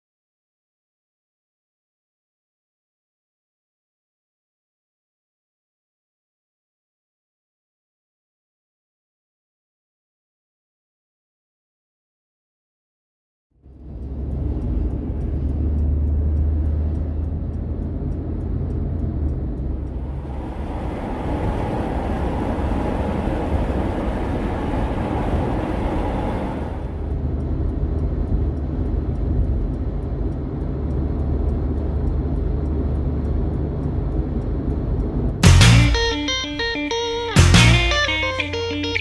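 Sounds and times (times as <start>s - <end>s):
low engine drone: 13.6s - 39.0s
broad rushing noise: 19.8s - 27.4s.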